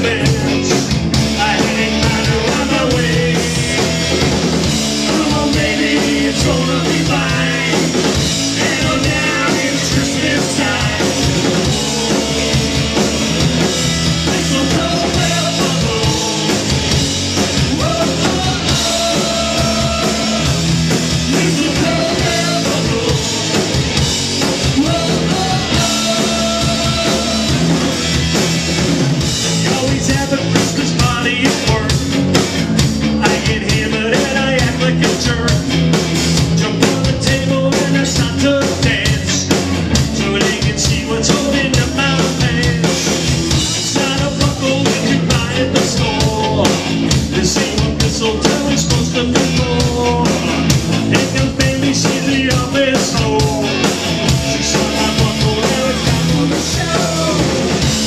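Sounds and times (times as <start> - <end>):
punk rock band playing: 0.0 - 58.0
person singing: 5.0 - 17.0, 17.7 - 23.9, 24.6 - 27.9, 43.9 - 57.7.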